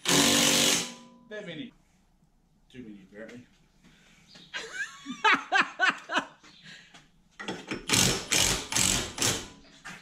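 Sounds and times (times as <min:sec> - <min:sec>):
impact wrench hammering: 0:00.0 - 0:01.2, 0:07.5 - 0:09.6
man laughing: 0:04.6 - 0:06.4.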